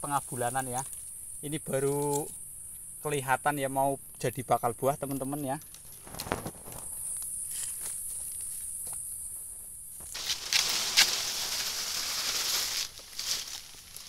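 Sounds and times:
high-pitched insect drone: 0:00.0 - 0:14.0
rustling in dry leaf litter: 0:10.0 - 0:14.0
sharp scrape or snap: 0:10.1 - 0:12.8.

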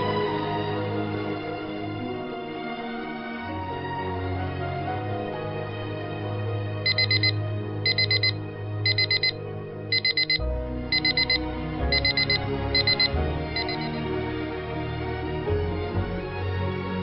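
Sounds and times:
soft background music: 0:00.0 - 0:17.0
alarm clock beeping: 0:06.9 - 0:13.9.

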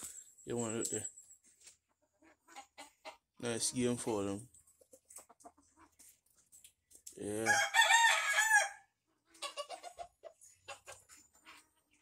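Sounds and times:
chicken clucking: 0:01.5 - 0:07.4, 0:09.0 - 0:12.0
rooster crowing: 0:07.4 - 0:08.9.

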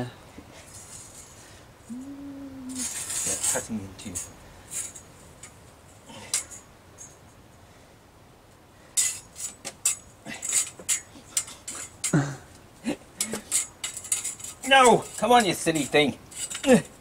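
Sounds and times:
person grunting: 0:01.9 - 0:02.9, 0:12.1 - 0:13.0
bandsaw blade rattling and clinking: 0:09.0 - 0:12.2, 0:13.2 - 0:17.0.

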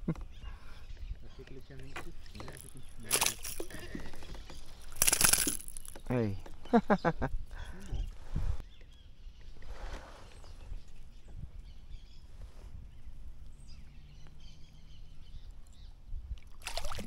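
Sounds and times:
low wind rumble: 0:06.2 - 0:16.6.

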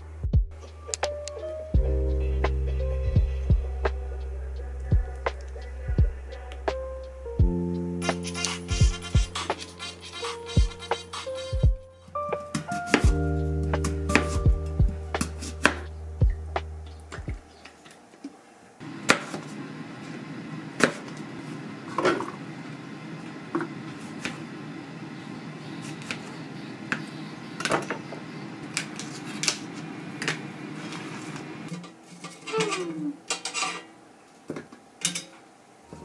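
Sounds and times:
steady low hum: 0:00.0 - 0:12.3, 0:13.0 - 0:30.8
utensils against air fryer basket: 0:08.0 - 0:11.7, 0:28.7 - 0:33.9.

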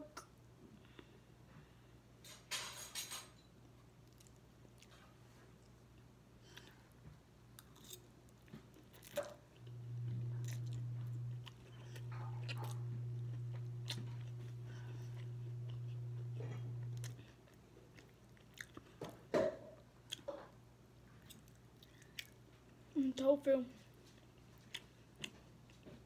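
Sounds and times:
person chewing food: 0:04.0 - 0:19.3, 0:20.0 - 0:22.8, 0:23.9 - 0:26.0
steady low hum: 0:09.0 - 0:18.4.

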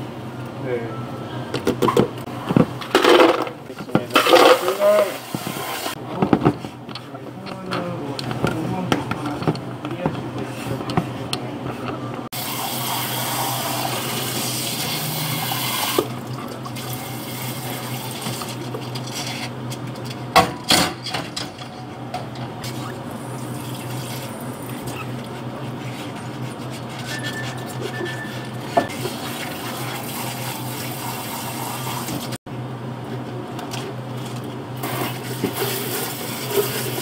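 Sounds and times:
smoothie pouring and scraping: 0:12.4 - 0:19.6, 0:34.8 - 0:37.0.

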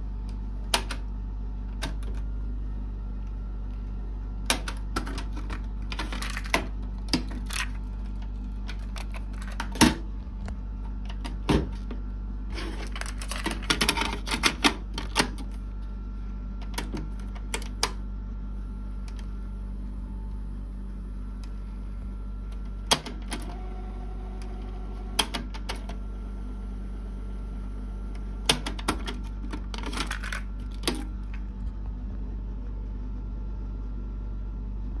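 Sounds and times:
low hum: 0:15.4 - 0:35.0.

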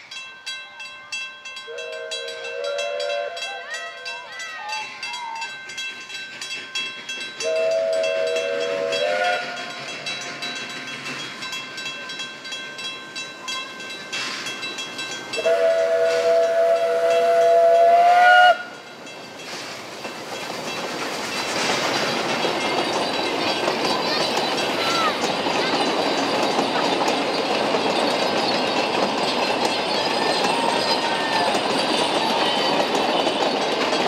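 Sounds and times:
steam locomotive chime whistle: 0:00.0 - 0:06.2, 0:07.0 - 0:11.0, 0:13.4 - 0:19.7
level crossing bells ringing: 0:00.0 - 0:18.0, 0:22.3 - 0:34.0
rush of steam and train: 0:00.0 - 0:34.0.

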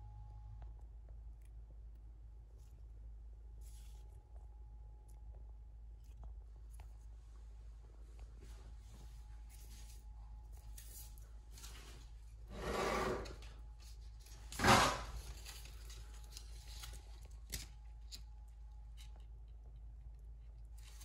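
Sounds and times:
rustling handling noises: 0:05.9 - 0:12.6, 0:13.2 - 0:21.0.

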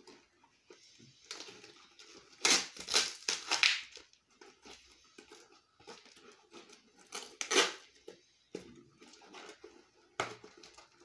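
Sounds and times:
plastic packaging crinkling: 0:00.8 - 0:08.1
loud ripping: 0:02.3 - 0:04.0, 0:07.0 - 0:07.8.

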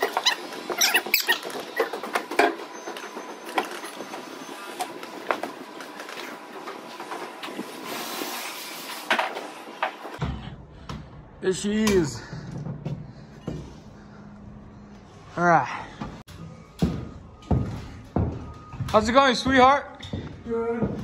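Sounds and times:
short squeaks: 0:00.0 - 0:05.0.

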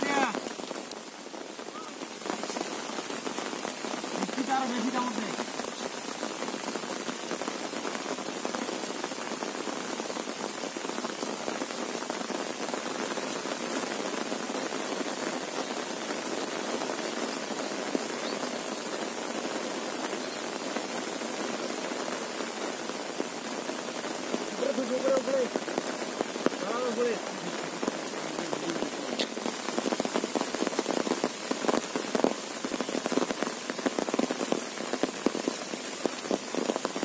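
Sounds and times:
raindrop ticks: 0:00.0 - 0:14.4, 0:23.6 - 0:37.0
heavy rain hissing: 0:00.0 - 0:37.0.

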